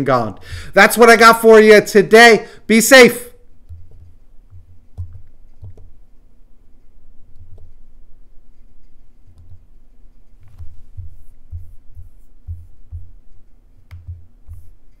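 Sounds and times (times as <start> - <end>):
faint steady hum: 0.0 - 15.0
dull low thumps: 10.4 - 14.8.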